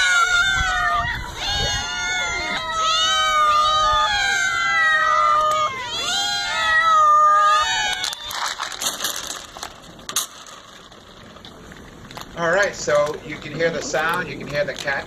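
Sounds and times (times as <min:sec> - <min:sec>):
cats meowing: 0:00.0 - 0:08.8
cats eating rustling: 0:00.0 - 0:15.0
kibble rattling onto wooden deck: 0:07.9 - 0:15.0.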